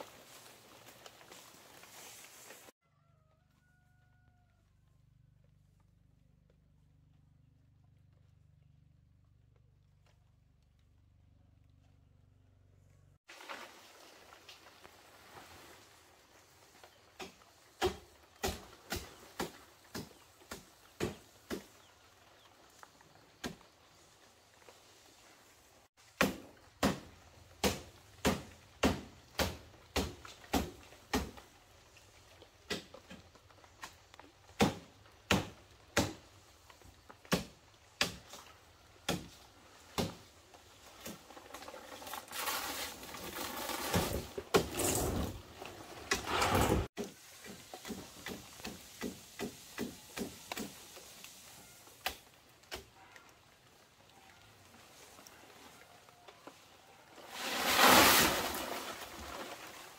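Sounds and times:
rustling noise: 0:00.0 - 0:02.8, 0:57.1 - 0:59.9
blade chopping palm leaves: 0:17.2 - 0:21.8, 0:26.0 - 0:31.6, 0:32.6 - 0:45.4, 0:46.1 - 0:51.4, 0:57.4 - 0:59.9.

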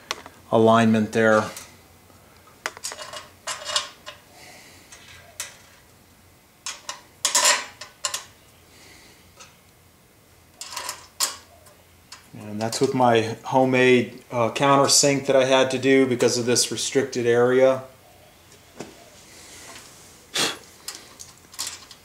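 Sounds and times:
metal bolts clinking and scraping: 0:02.8 - 0:04.2, 0:06.6 - 0:08.3, 0:10.6 - 0:11.5, 0:20.8 - 0:22.0.

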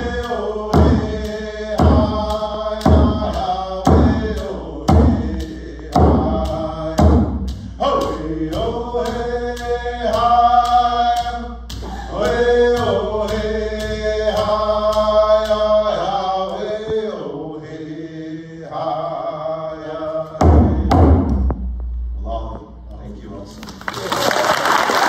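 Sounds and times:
percussion beat: 0:00.0 - 0:17.2, 0:20.4 - 0:22.8
two men chanting: 0:00.0 - 0:21.2.

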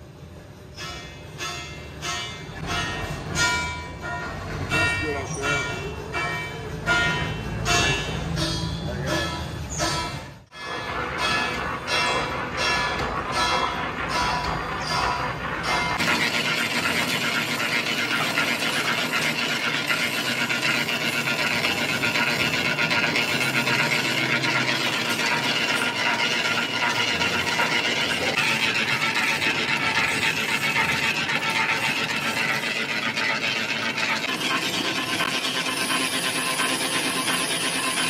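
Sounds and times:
lathe running: 0:10.5 - 0:38.0
lathe tool scraping metal: 0:10.5 - 0:38.0.

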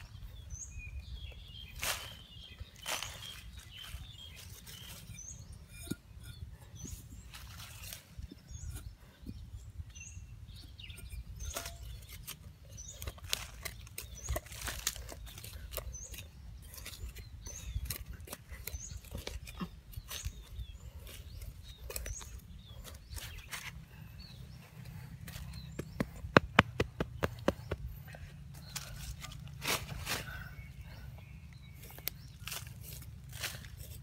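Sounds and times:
small birds chirping: 0:00.0 - 0:34.0
metal hoe chopping into soil: 0:10.9 - 0:20.4.

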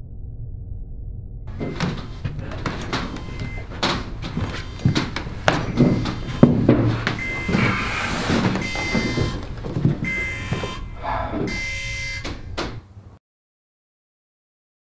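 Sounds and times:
low rumble: 0:00.0 - 0:02.5
metal knocks and clanks: 0:01.5 - 0:12.9
short alarm tone beeping: 0:04.5 - 0:12.5.

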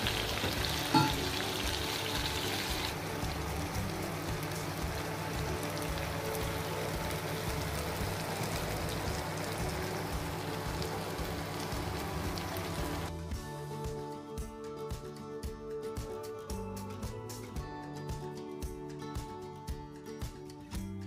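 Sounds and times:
chicken sizzling in a frying pan: 0:00.0 - 0:13.2
soft background music: 0:00.0 - 0:21.0.

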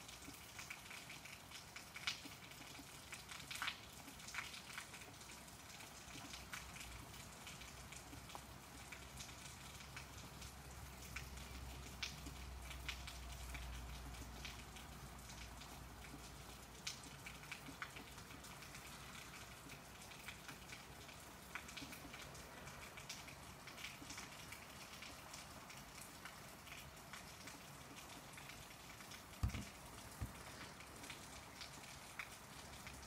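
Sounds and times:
faint steady rain: 0:00.0 - 0:33.0
dull knocks: 0:29.4 - 0:30.4.

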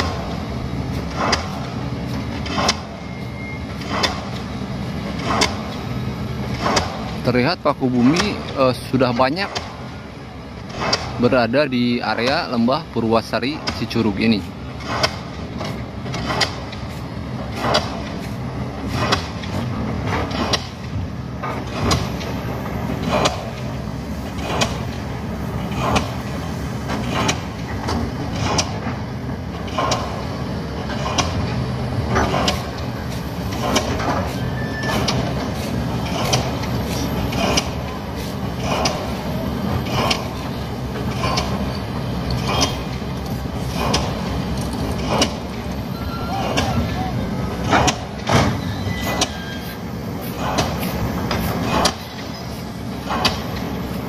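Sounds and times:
diesel engines droning: 0:00.0 - 0:54.0.

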